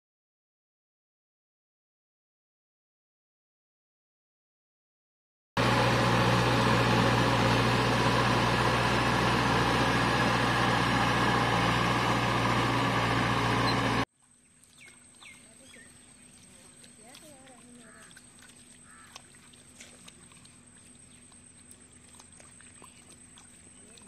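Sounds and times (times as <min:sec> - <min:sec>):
tractor engine running: 0:05.6 - 0:14.1
wheels churning water: 0:05.6 - 0:24.0
faint bird chirps: 0:13.6 - 0:17.1.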